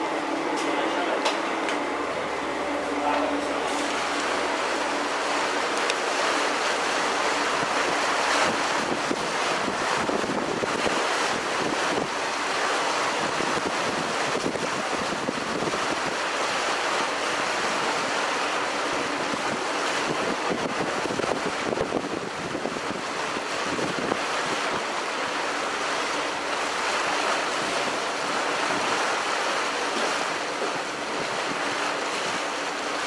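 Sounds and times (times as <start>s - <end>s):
water rushing along hull: 0.0s - 33.0s
wind buffeting microphone: 1.8s - 16.2s, 18.9s - 25.2s.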